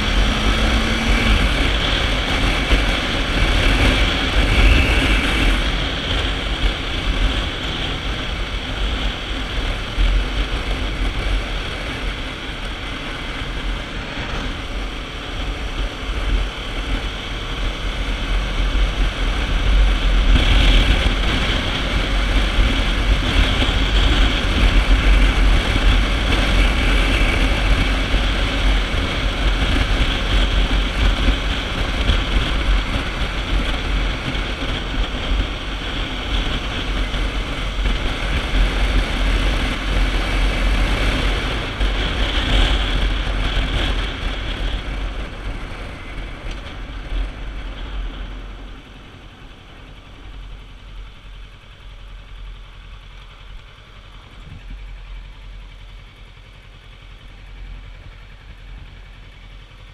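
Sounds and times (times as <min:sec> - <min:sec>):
wind buffeting microphone: 0:00.0 - 0:51.3
motorcycle engine running: 0:00.0 - 0:59.9.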